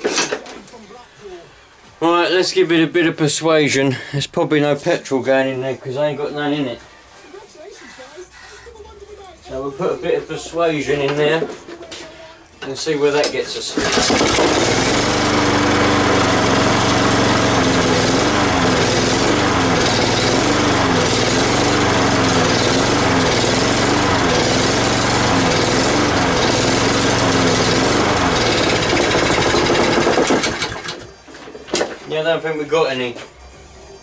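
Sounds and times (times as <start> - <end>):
lawn mower engine surging: 13.7 - 31.2.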